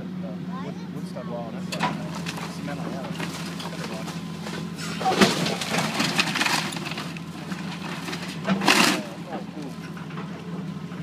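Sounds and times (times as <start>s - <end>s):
excavator diesel engine running: 0.0s - 11.0s
debris crashing: 1.7s - 9.6s
wood cracking: 1.8s - 9.8s.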